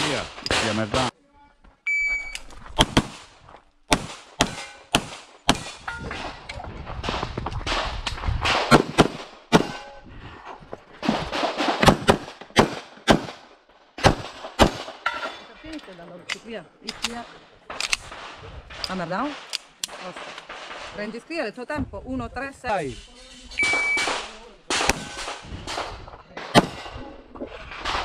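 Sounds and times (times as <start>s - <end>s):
pistol shots: 3.9s - 5.8s, 11.4s - 13.4s, 23.6s - 27.0s.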